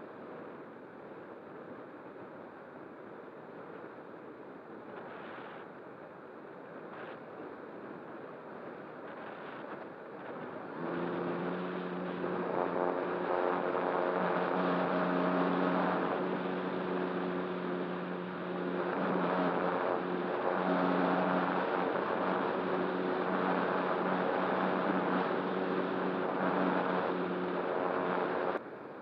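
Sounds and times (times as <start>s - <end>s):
airflow rushing: 9.0s - 28.6s
propeller motor humming: 9.1s - 28.6s.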